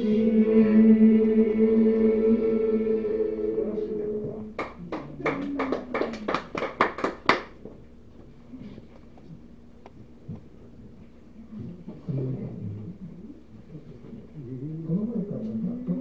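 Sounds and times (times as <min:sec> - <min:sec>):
person singing: 0:00.0 - 0:04.5
small group clapping: 0:04.5 - 0:07.8.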